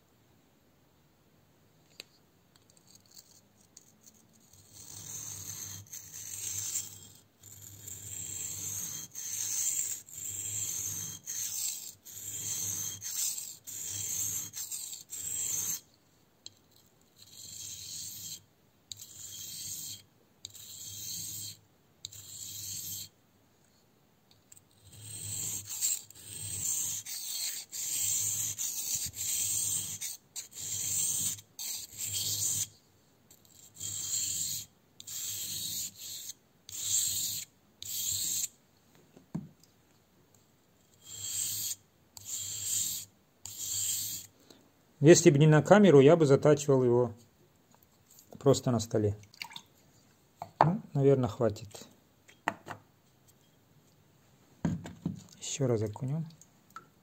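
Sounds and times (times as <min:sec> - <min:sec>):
knife blade scraping on whetstone: 0:02.8 - 0:15.9, 0:17.2 - 0:23.1, 0:24.8 - 0:32.8, 0:33.4 - 0:38.5, 0:41.0 - 0:44.3.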